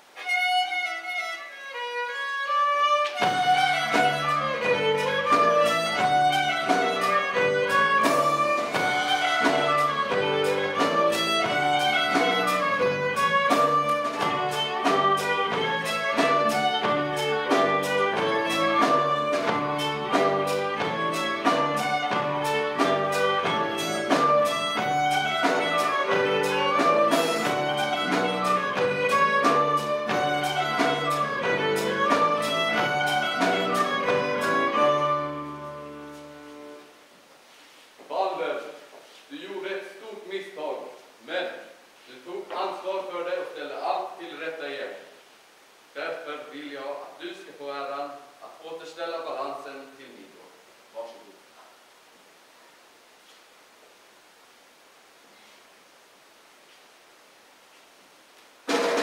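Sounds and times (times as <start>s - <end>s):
fiddle melody: 0.0s - 36.9s
folk band playing: 0.0s - 37.0s, 58.7s - 59.0s.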